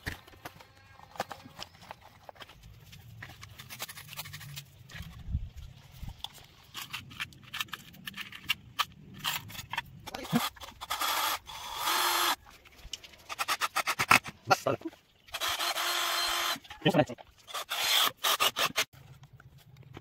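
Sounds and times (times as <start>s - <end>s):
clicks and rattles of handling parts: 6.1s - 10.9s
cordless drill driving screws: 10.3s - 12.4s, 15.3s - 16.6s, 17.4s - 18.9s.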